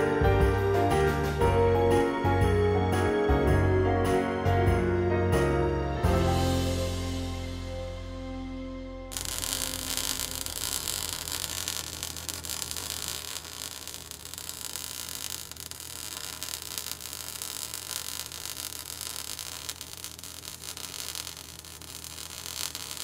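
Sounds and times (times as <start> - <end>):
static hiss: 9.1 - 23.0.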